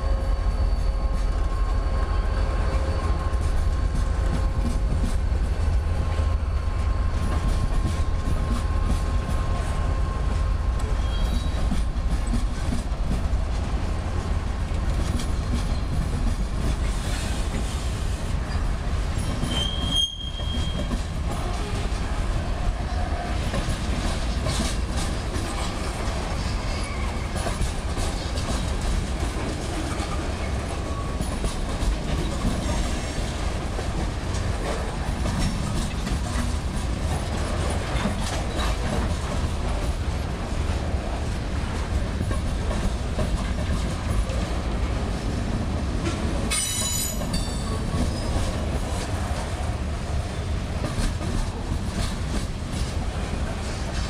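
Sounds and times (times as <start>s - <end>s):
freight train rumbling past: 0.0s - 54.0s
wheel squeal: 0.1s - 3.2s, 11.0s - 11.6s, 19.2s - 21.0s, 26.4s - 27.4s, 46.5s - 48.5s
wheels clicking over rail joints: 23.2s - 40.1s.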